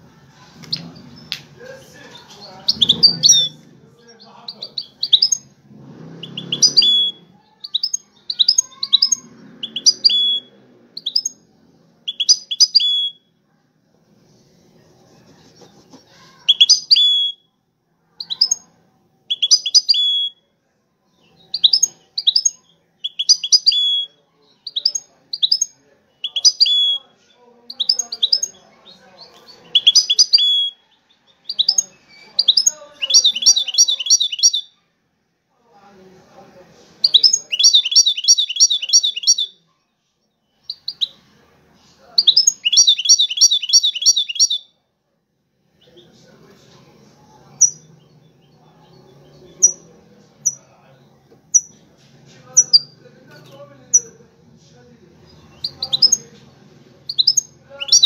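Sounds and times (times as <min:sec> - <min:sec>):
bird twittering chirps: 0:02.1 - 0:05.6, 0:06.2 - 0:11.5, 0:12.1 - 0:13.2, 0:16.4 - 0:17.5, 0:18.2 - 0:18.7, 0:19.3 - 0:20.4, 0:21.2 - 0:27.0, 0:27.7 - 0:30.8, 0:31.4 - 0:34.7, 0:37.0 - 0:39.6, 0:40.5 - 0:41.2, 0:42.2 - 0:44.7, 0:47.6 - 0:50.6, 0:55.3 - 0:56.3, 0:57.1 - 0:58.0.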